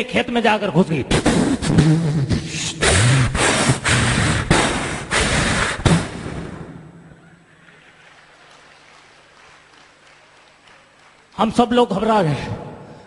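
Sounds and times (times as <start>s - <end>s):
man imitating train crash: 1.2s - 6.2s.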